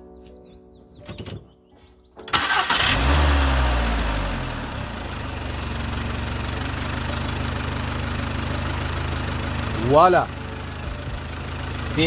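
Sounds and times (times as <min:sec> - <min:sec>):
car engine starting and idling: 0:02.3 - 0:12.0.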